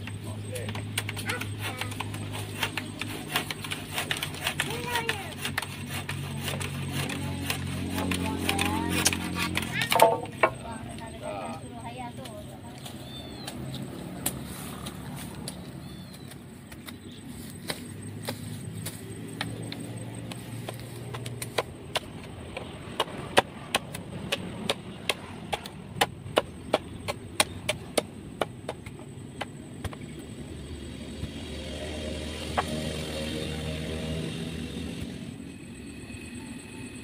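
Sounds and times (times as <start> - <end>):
blade chopping wood: 0.7 - 10.6, 16.2 - 30.0
low steady drone: 30.4 - 37.0.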